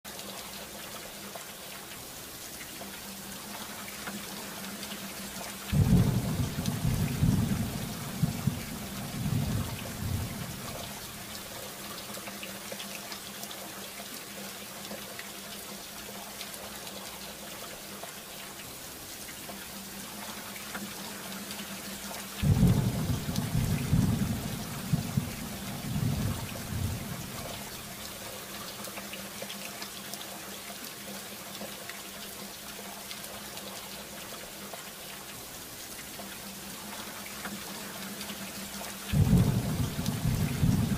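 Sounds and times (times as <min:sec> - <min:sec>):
rainfall hiss: 0:00.1 - 0:40.9
rolling thunder: 0:05.7 - 0:10.8, 0:22.4 - 0:27.7, 0:39.1 - 0:40.9.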